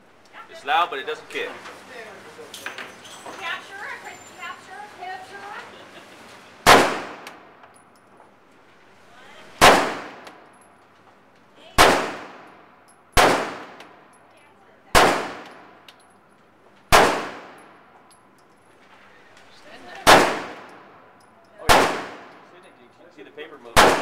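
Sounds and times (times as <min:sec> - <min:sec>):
pistol shots echoing: 0:06.6 - 0:07.5, 0:09.6 - 0:10.5, 0:11.8 - 0:14.0, 0:14.9 - 0:15.8, 0:16.9 - 0:17.8, 0:19.9 - 0:20.9, 0:21.6 - 0:22.5, 0:23.7 - 0:24.0.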